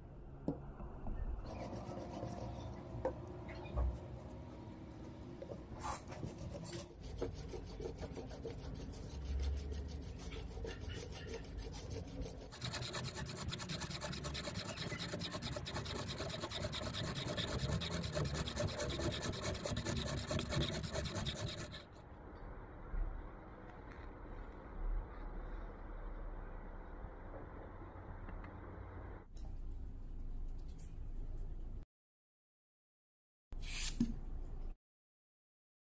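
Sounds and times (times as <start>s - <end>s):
knife scraping bamboo: 5.8s - 21.8s, 33.6s - 34.1s.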